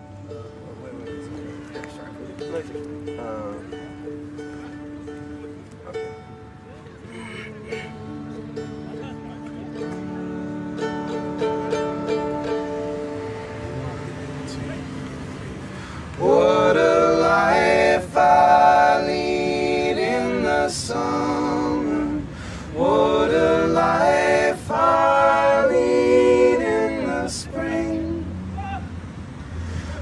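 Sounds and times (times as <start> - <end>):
people singing: 16.2 - 28.4.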